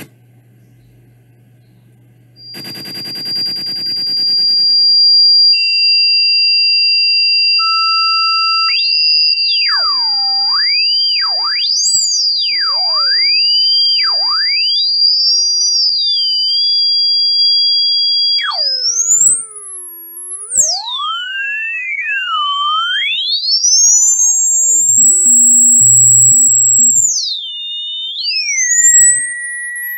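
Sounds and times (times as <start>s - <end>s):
steady high electronic tone: 2.4s - 4.9s, 7.6s - 14.7s, 18.1s - 23.2s
tone gliding up and down: 18.4s - 27.1s.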